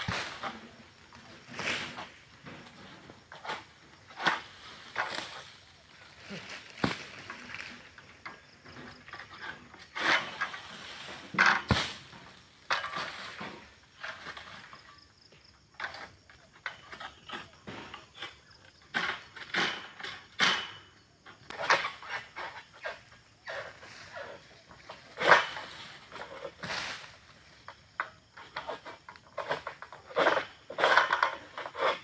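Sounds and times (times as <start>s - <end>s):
palm fronds rustling: 0.0s - 15.0s, 21.5s - 32.0s.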